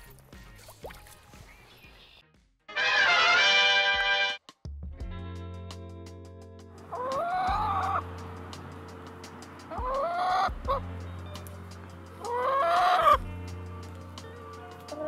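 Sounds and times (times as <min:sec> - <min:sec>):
background music: 0:00.0 - 0:15.0
chicken calling: 0:06.8 - 0:08.1, 0:09.6 - 0:10.9, 0:11.5 - 0:13.4, 0:14.6 - 0:15.0.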